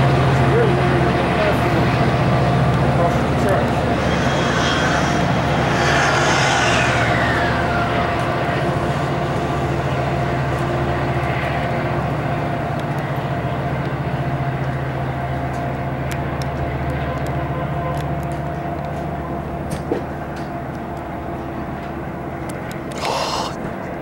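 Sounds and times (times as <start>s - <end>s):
train cars rumbling: 0.0s - 22.7s
train engine drone: 0.0s - 24.0s
high falling whine: 1.7s - 10.3s.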